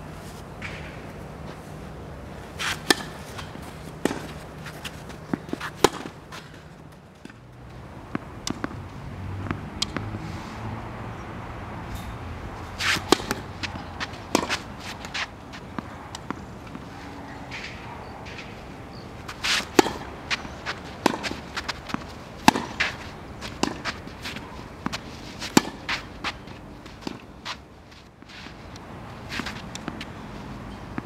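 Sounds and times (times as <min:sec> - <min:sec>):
racket striking tennis ball: 0:00.6 - 0:01.2, 0:02.5 - 0:07.4, 0:08.1 - 0:08.8, 0:09.4 - 0:10.2, 0:11.9 - 0:30.1
footsteps on court: 0:02.5 - 0:08.8, 0:12.8 - 0:16.9, 0:19.3 - 0:31.0
tennis ball bouncing: 0:02.5 - 0:10.2, 0:12.0 - 0:31.0.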